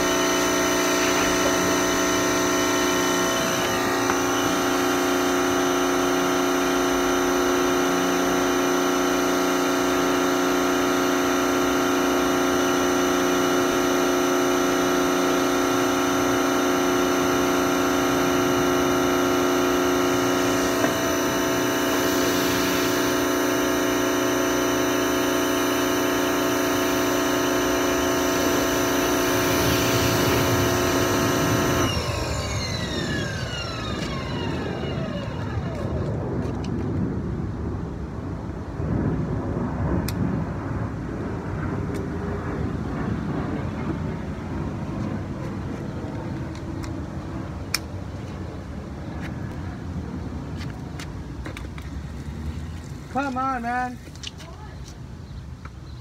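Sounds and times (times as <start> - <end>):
water spraying on wheels: 0.0 - 32.2
pressure washer motor and pump: 0.0 - 37.3, 41.3 - 56.0.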